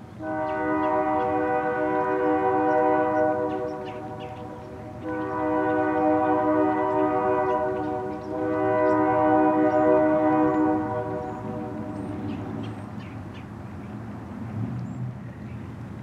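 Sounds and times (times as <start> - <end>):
low train rumble: 0.0 - 16.0
locomotive air horn blasts: 0.2 - 12.2.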